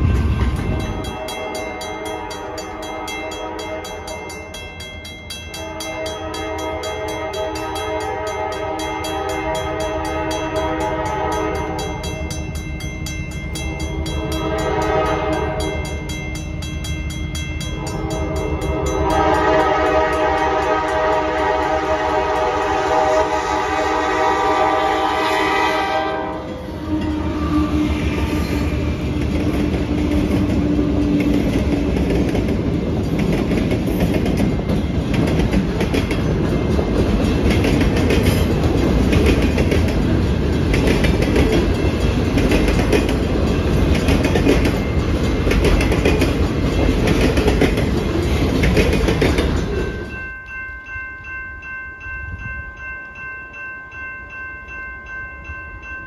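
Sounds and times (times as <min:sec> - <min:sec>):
train wheels rumbling: 0:00.0 - 0:50.4
locomotive air horn blasts: 0:01.1 - 0:04.1, 0:05.6 - 0:12.0, 0:13.7 - 0:15.8, 0:17.8 - 0:29.2.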